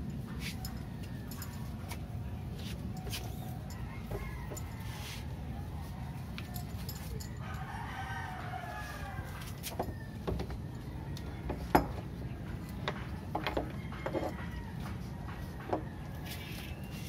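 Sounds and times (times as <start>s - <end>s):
rooster crowing: 3.6s - 6.7s, 7.3s - 11.7s.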